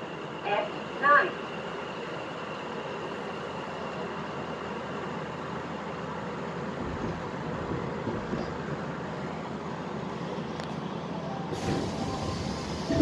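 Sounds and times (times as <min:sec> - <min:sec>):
train wheels rumbling: 0:01.5 - 0:13.0
hiss: 0:11.5 - 0:13.0.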